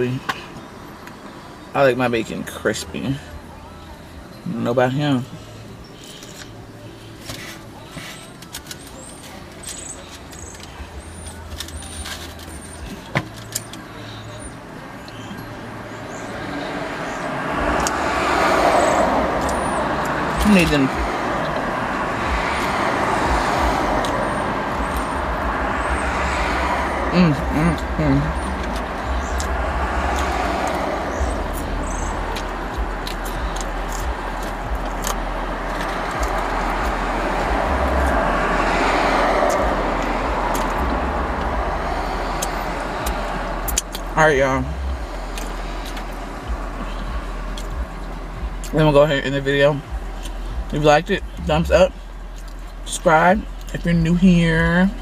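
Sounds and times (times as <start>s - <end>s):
passing vehicles: 0.0s - 55.0s
road noise inside car: 0.0s - 55.0s
low rumble: 17.4s - 48.7s.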